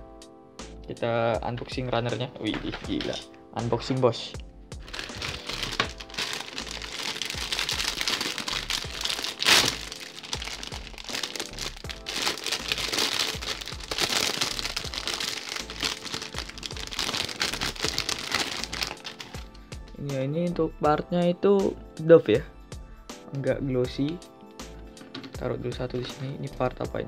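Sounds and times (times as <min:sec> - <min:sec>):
background music: 0:00.0 - 0:27.0
plastic bag crinkling: 0:04.8 - 0:19.5.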